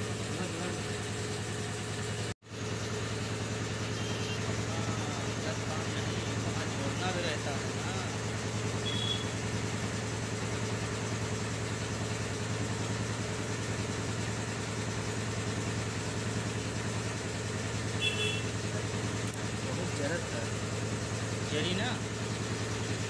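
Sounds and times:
engine idling: 0:00.0 - 0:23.0
short high beeps: 0:08.8 - 0:09.3.

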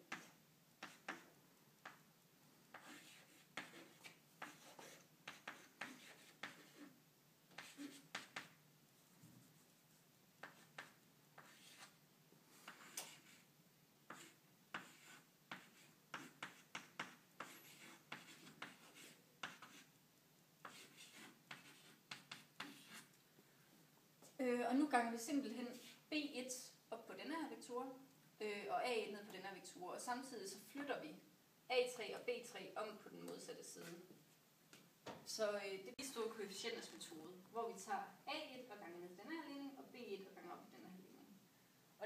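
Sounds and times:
chalk writing on blackboard: 0:00.0 - 0:02.0, 0:02.7 - 0:08.6, 0:10.4 - 0:12.0, 0:12.6 - 0:13.5, 0:14.1 - 0:19.9, 0:20.6 - 0:23.1.

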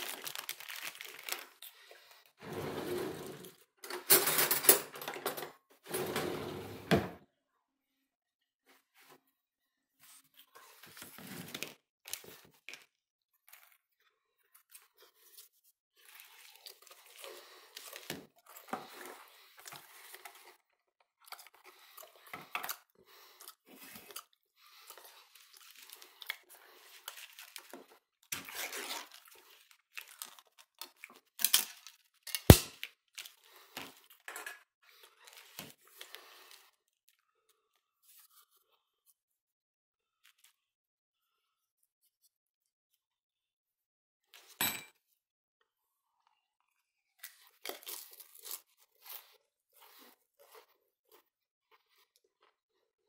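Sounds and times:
packaging crinkling: 0:00.0 - 0:01.6.

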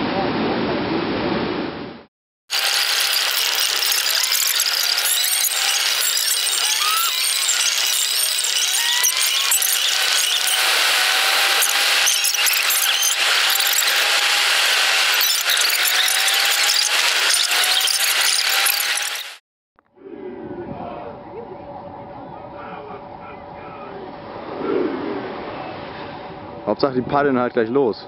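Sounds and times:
faint gliding tones: 0:19.9 - 0:26.8.

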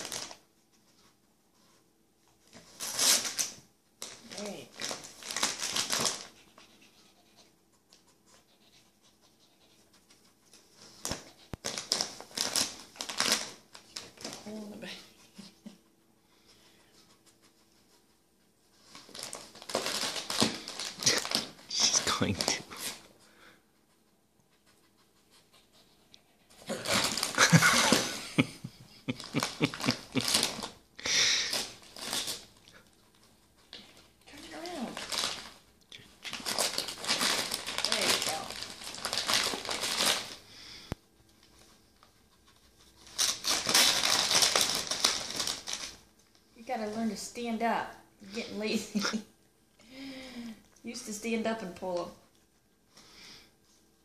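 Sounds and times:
wrapping paper crinkling: 0:00.0 - 0:00.5, 0:02.5 - 0:06.7, 0:10.5 - 0:14.8, 0:18.7 - 0:23.0, 0:26.7 - 0:40.5, 0:41.4 - 0:46.5
dog panting and snuffling: 0:05.3 - 0:12.3, 0:13.9 - 0:19.2, 0:22.6 - 0:28.0.

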